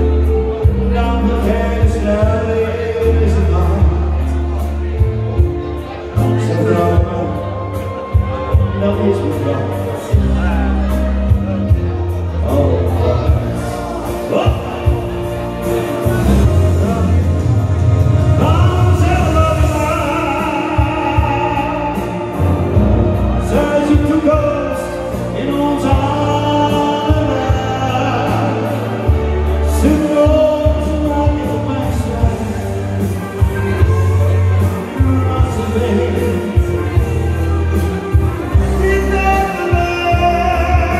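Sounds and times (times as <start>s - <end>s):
song with lead vocal: 0.0s - 40.9s.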